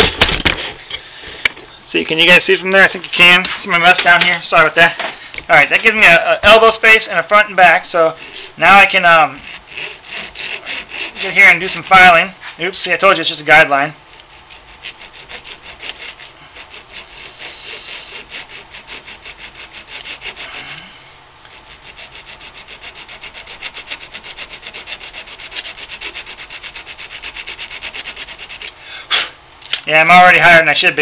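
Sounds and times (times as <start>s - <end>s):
file scraping metal tube: 5.6s - 28.8s.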